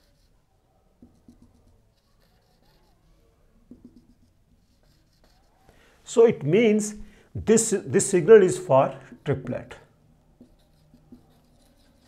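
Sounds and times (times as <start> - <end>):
marker tapping on whiteboard: 1.0 - 1.7, 3.7 - 5.0, 10.4 - 12.0.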